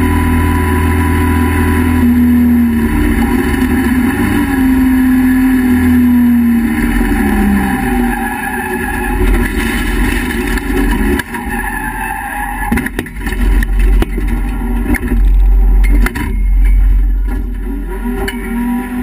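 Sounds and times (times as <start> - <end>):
race car engine running: 0.0 - 19.0
loud low rumble: 13.2 - 18.3.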